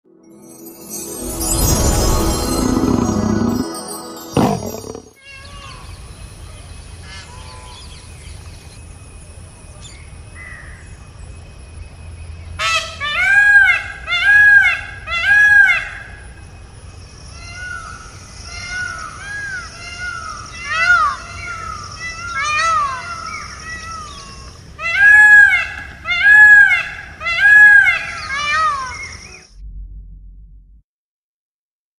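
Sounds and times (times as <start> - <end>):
high-pitched background tone: 0.1 - 5.2.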